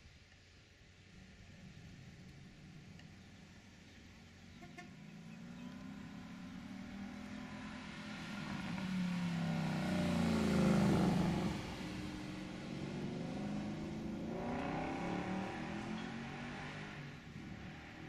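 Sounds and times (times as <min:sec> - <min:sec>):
car engine accelerating past: 0:04.1 - 0:18.0.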